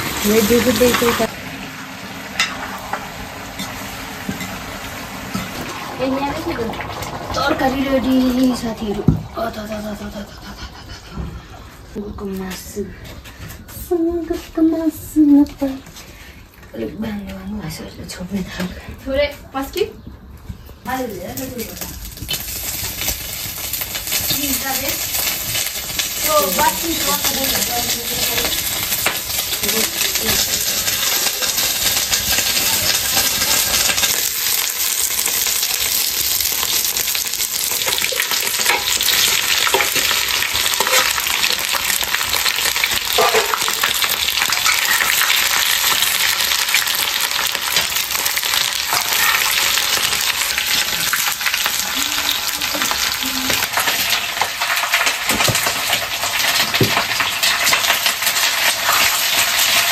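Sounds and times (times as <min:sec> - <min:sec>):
meat sizzling in hot oil: 0:00.0 - 0:09.9, 0:20.9 - 0:59.9
metal ladle clinking and scraping: 0:43.1 - 0:43.8.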